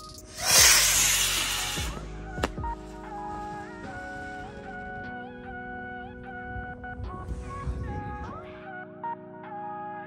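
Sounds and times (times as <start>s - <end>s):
electronic music with kick drum: 0.0s - 5.1s
loud hiss: 0.2s - 2.0s.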